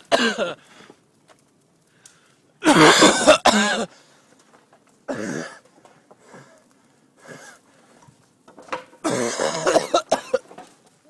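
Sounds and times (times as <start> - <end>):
man coughing: 0.1 - 0.6, 2.6 - 3.9, 9.0 - 10.5.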